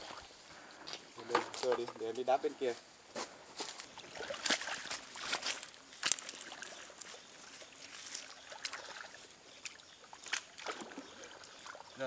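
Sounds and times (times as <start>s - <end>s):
water splashing in stream: 3.8s - 12.0s.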